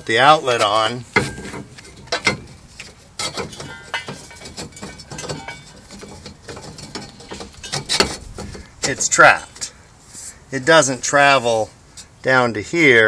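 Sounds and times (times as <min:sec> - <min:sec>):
metal tubes scraping and knocking: 0:00.0 - 0:10.4.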